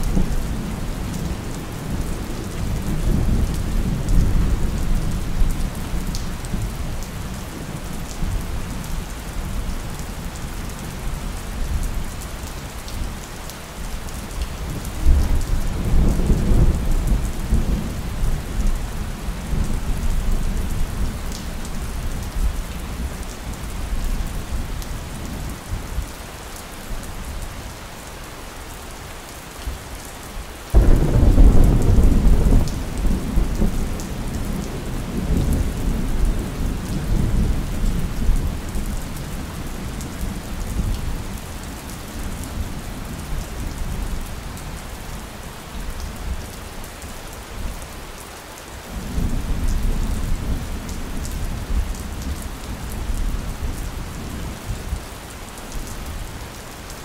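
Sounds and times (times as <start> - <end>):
steady rain: 0.0 - 57.0
thunder rumbling: 30.8 - 38.7.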